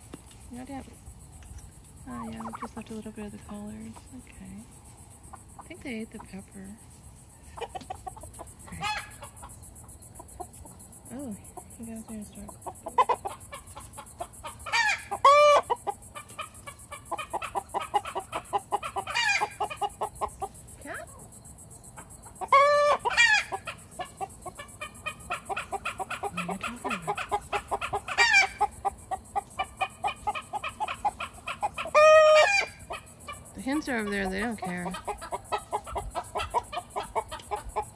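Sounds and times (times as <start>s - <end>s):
chickens clucking: 0.6s - 37.9s
loud chicken calls: 2.2s - 2.8s, 7.5s - 9.5s, 12.7s - 20.5s, 22.2s - 37.9s.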